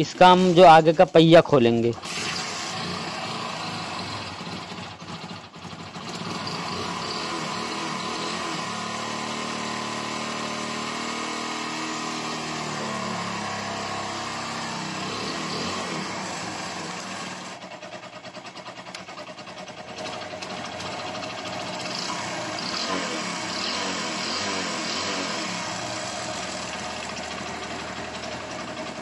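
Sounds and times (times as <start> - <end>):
motorcycle engine idling: 0.0 - 11.0, 12.3 - 29.0.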